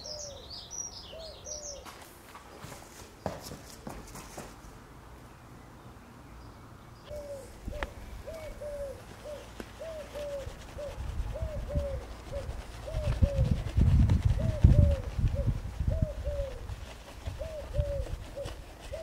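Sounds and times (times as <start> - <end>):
pigeon cooing: 0.0 - 0.5, 7.1 - 19.0.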